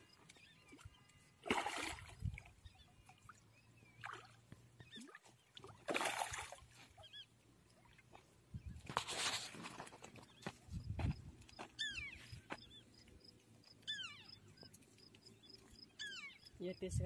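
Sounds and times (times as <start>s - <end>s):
fish splashing in shallow water: 0.5s - 10.0s.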